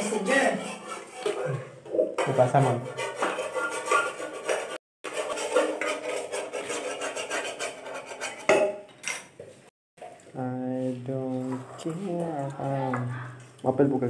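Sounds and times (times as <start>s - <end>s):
sponge scrubbing a metal pot: 0.0s - 8.6s
pot clattering against dishes: 8.1s - 9.3s.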